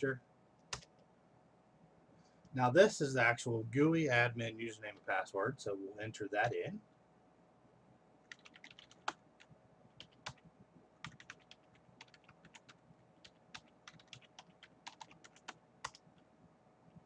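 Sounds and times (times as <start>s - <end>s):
typing on computer keyboard: 8.3s - 9.2s, 10.0s - 16.1s.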